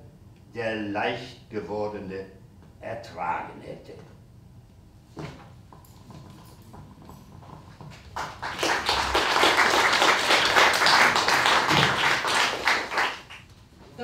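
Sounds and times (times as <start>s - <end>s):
audience applauding: 8.1s - 13.5s.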